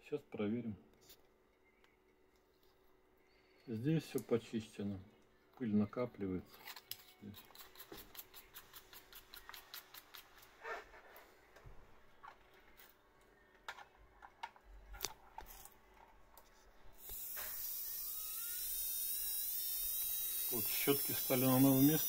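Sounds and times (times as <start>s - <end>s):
micromotor high whine: 17.0s - 22.0s.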